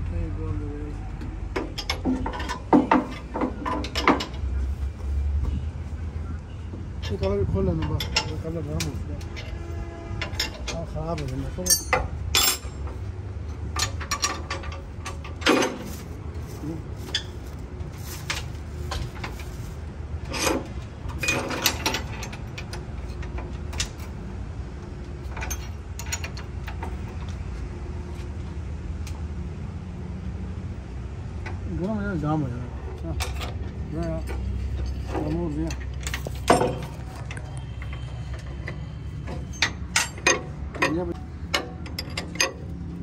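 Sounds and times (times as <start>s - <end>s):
tools knocking on metal: 1.5s - 4.4s.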